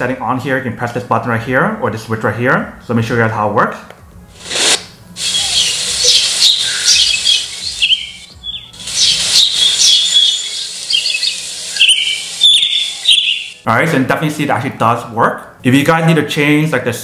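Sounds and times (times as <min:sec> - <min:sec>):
steady speaker hiss: 0:00.0 - 0:17.0
recorded birds chirping: 0:05.2 - 0:13.6.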